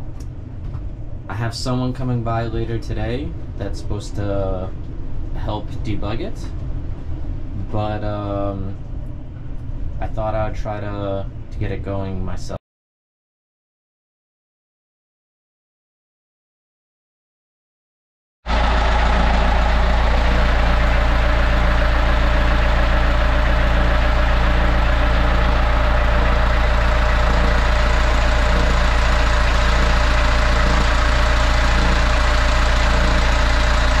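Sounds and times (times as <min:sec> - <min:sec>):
diesel engine idling: 0:18.5 - 0:34.0.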